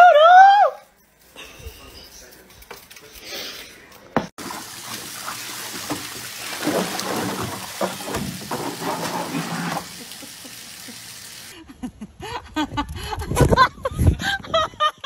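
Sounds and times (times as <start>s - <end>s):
water gushing onto paving: 4.4s - 11.5s.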